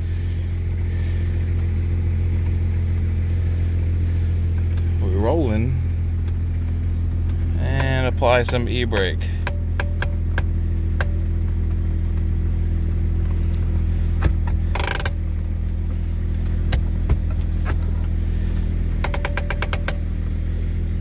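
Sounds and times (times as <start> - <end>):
car engine idling: 0.0 - 21.0
clicks: 19.0 - 20.0.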